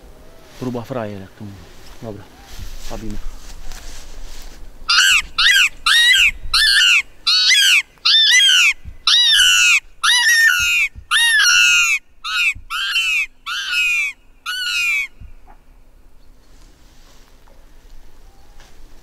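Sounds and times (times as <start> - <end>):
predator call squealing: 4.9 - 15.6.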